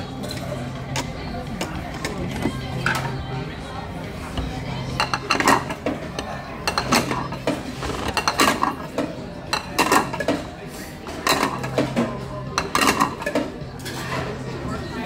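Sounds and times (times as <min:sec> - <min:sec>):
plates clattering: 0:04.8 - 0:14.4.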